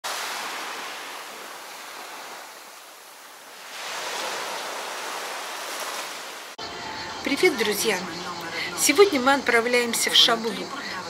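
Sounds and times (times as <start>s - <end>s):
waves washing on beach: 0.0s - 6.6s.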